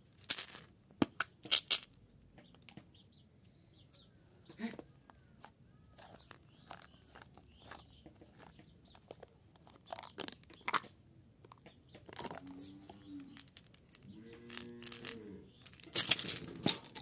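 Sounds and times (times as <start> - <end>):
foil lid crinkling and tearing: 14.4 - 17.0.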